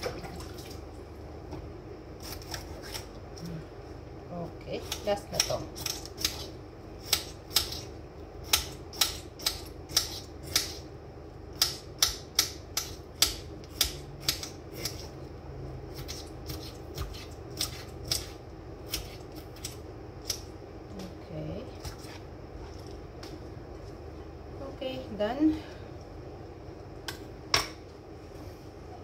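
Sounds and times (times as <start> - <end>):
knife cutting pepper on board: 15.9 - 20.4.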